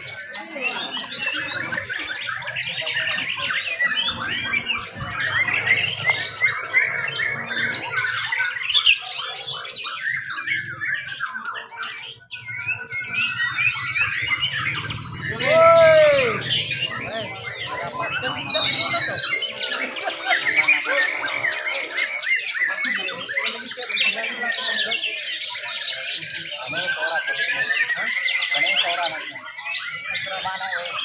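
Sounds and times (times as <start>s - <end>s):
birds singing in chorus: 0.0s - 31.0s
low arching bird call: 13.2s - 22.2s.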